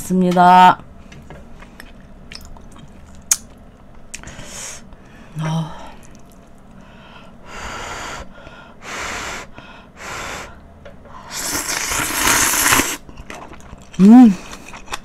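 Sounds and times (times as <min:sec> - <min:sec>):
person slurping noodles: 0:11.3 - 0:13.6.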